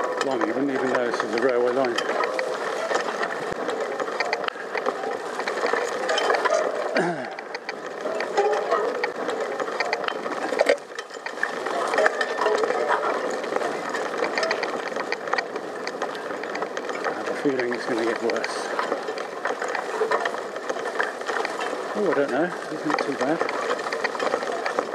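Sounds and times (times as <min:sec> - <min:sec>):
bicycle freewheel ticking: 0:00.0 - 0:24.9
bike rustling through long grass: 0:00.0 - 0:24.9.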